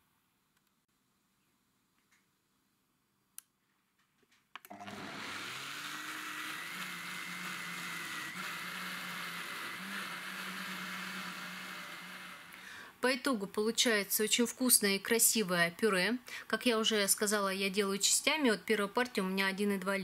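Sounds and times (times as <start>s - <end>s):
blender motor whining: 4.7s - 13.0s.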